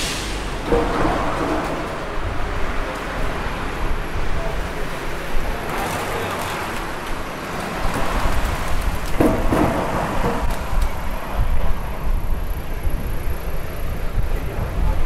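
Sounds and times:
passing cars rumble and hiss: 0:00.0 - 0:15.0.

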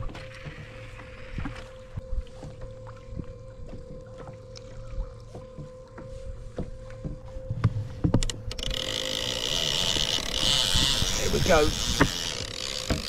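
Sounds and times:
water slapping kayak hull: 0:00.0 - 0:13.0
fishing reel clicker ratcheting: 0:08.2 - 0:13.0
small knocks and clicks: 0:11.8 - 0:13.0.

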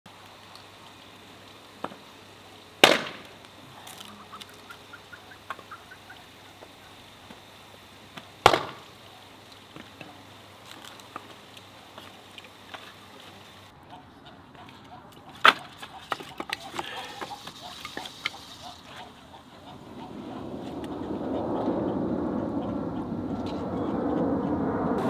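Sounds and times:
hatchet chopping wood: 0:02.8 - 0:03.3, 0:08.4 - 0:08.8.

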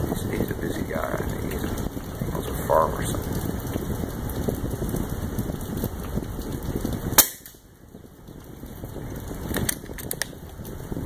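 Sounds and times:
rain hissing: 0:00.0 - 0:11.0
airgun shot: 0:07.2 - 0:07.6.

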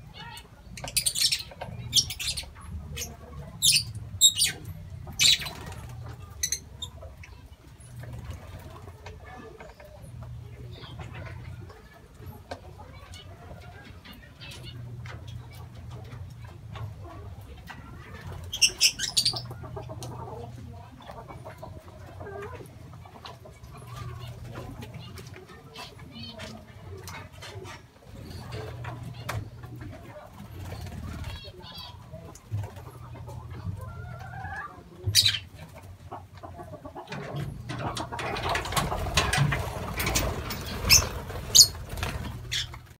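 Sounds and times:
birds pecking leaves: 0:00.0 - 0:43.0
bird fluttering: 0:30.3 - 0:31.5, 0:37.9 - 0:43.0.

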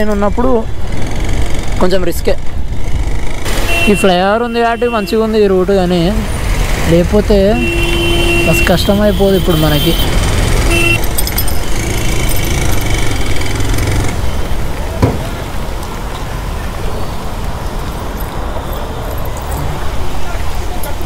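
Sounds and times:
bus running: 0:00.0 - 0:21.0
road traffic: 0:00.0 - 0:21.0
rain and wind noise: 0:12.8 - 0:21.0.

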